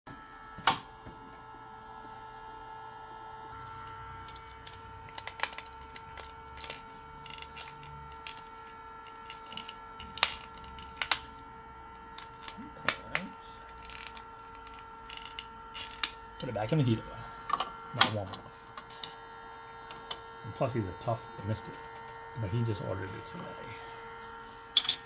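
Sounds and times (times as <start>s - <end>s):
frame heater humming: 0.1s - 25.0s.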